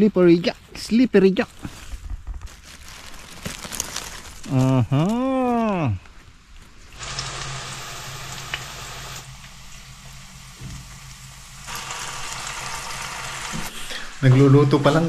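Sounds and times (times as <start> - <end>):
mushrooms sizzling in a pan: 7.0 - 15.0.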